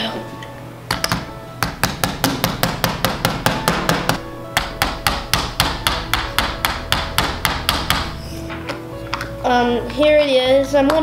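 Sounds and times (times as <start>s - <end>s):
hammer striking nails into wood: 0.9s - 8.2s.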